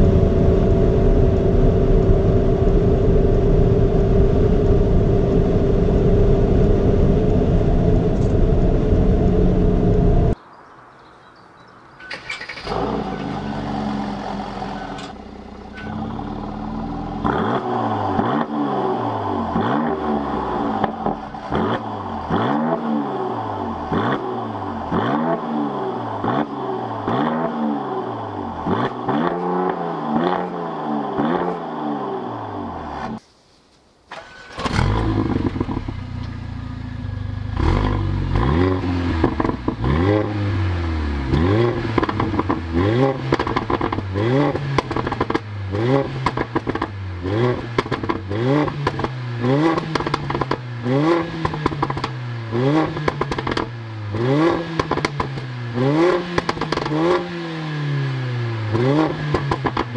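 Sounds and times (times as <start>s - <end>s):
car engine idling: 12.1s - 17.4s, 34.8s - 38.4s
car exhaust revving in blips: 12.7s - 33.1s, 34.8s - 59.9s.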